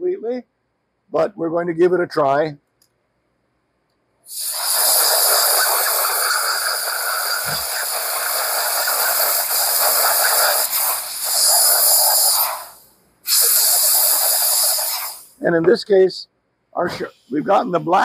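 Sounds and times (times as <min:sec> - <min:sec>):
steam gun hissing: 0:04.3 - 0:15.5.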